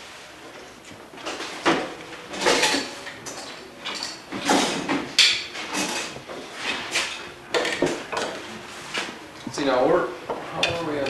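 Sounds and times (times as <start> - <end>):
tools clunking and scraping: 0.5 - 9.2.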